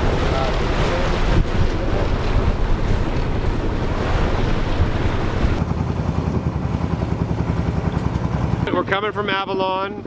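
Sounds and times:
wind buffeting microphone: 0.0 - 5.8
low pulsing rumble: 0.0 - 8.9
water rushing past hull: 0.0 - 9.7.

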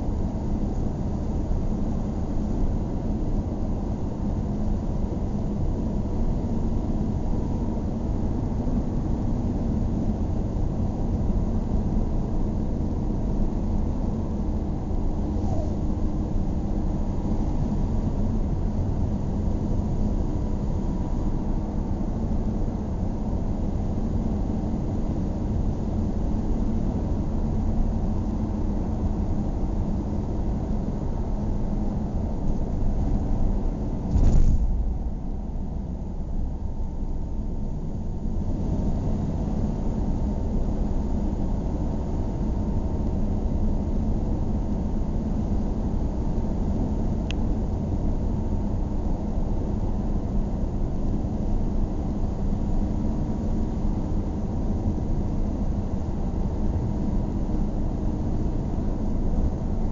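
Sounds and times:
car engine and tyre rumble: 27.5 - 48.7
loud thump: 34.1 - 35.1.

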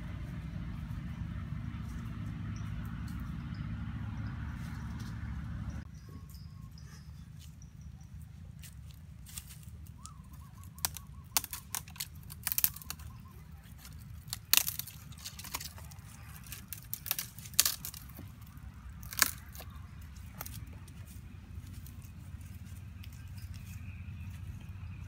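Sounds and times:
low steady rumble: 0.0 - 25.0
leaves tearing: 9.2 - 22.2
twigs snapping: 9.3 - 22.2.

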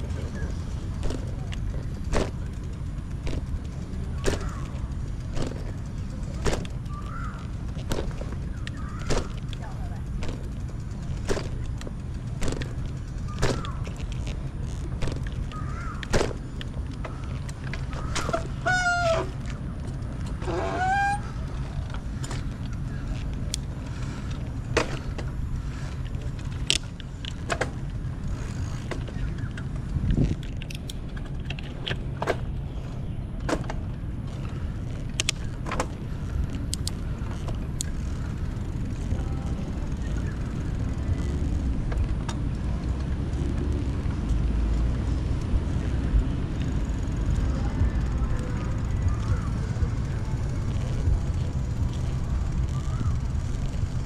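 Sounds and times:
honk-like calls: 18.3 - 19.3.

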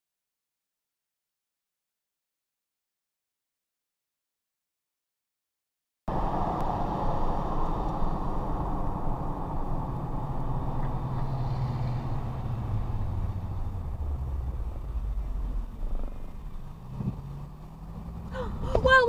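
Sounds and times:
car engine: 6.1 - 19.0
road noise: 6.1 - 19.0.

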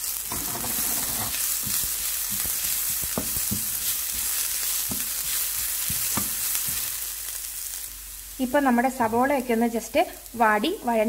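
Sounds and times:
vegetables sizzling in hot oil: 0.0 - 11.0
spatula scraping a pan: 0.2 - 7.0.

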